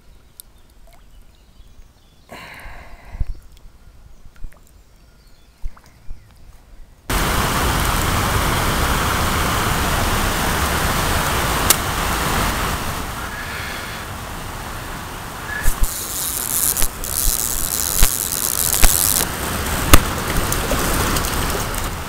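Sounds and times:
river water rushing over weirs: 0:07.1 - 0:22.0
faint clicks: 0:15.5 - 0:19.3.

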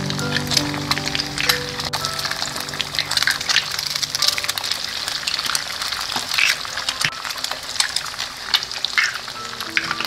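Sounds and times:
food sizzling in hot oil: 0:00.0 - 0:10.0.

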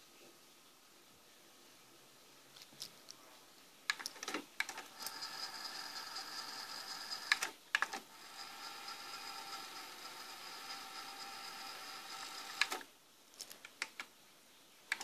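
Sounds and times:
tape fast-winding whir: 0:08.2 - 0:12.8.

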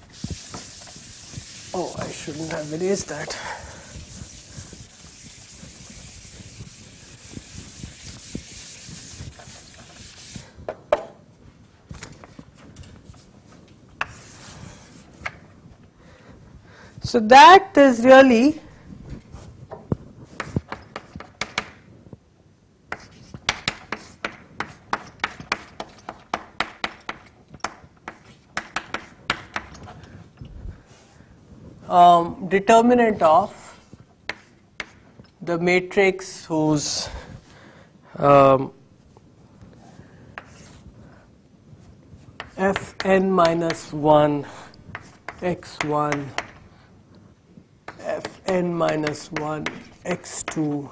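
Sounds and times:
duster rubbing chalkboard: 0:00.0 - 0:10.6, 0:14.0 - 0:15.4
chalk tapping on blackboard: 0:00.1 - 0:11.1, 0:14.0 - 0:15.4, 0:20.4 - 0:21.8, 0:22.9 - 0:29.7, 0:34.3 - 0:35.1, 0:40.4 - 0:40.8, 0:42.4 - 0:44.0, 0:44.9 - 0:46.6, 0:47.9 - 0:50.8
sharp knocks and taps: 0:19.7 - 0:21.8, 0:22.9 - 0:29.9, 0:44.9 - 0:46.6, 0:47.9 - 0:50.7.

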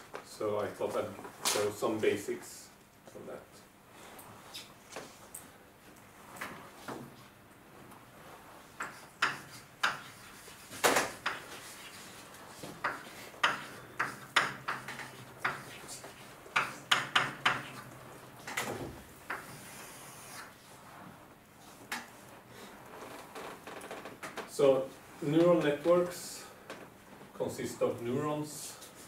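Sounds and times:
writing taps and scrapes on board: 0:08.8 - 0:17.9, 0:19.3 - 0:19.8.

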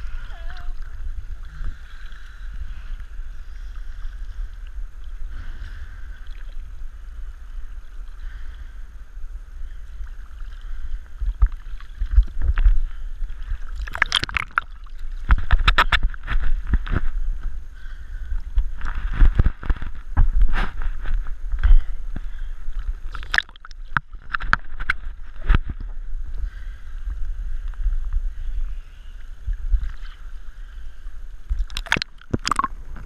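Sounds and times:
muffled waves splashing: 0:00.0 - 0:33.0.

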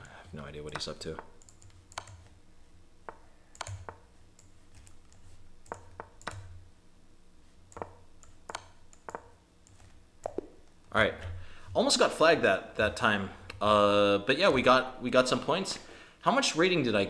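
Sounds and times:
computer mouse clicking: 0:00.0 - 0:02.4, 0:03.0 - 0:06.5, 0:07.7 - 0:10.5.

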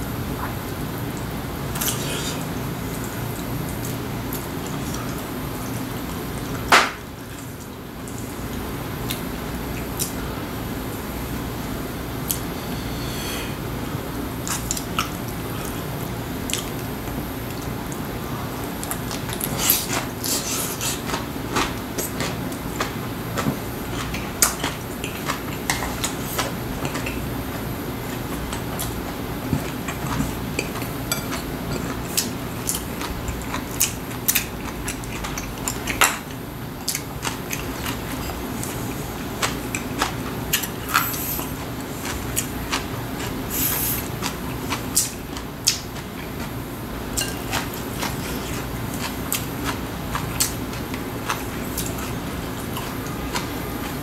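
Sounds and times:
steady low hum: 0:00.0 - 0:54.0
chewing: 0:17.5 - 0:27.2, 0:28.1 - 0:46.6, 0:47.2 - 0:54.0.

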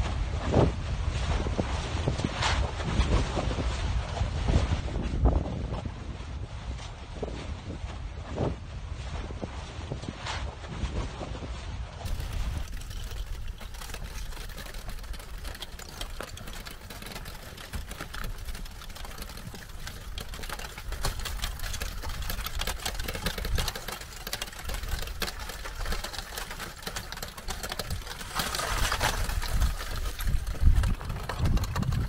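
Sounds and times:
lava crust crackling: 0:12.0 - 0:32.0.

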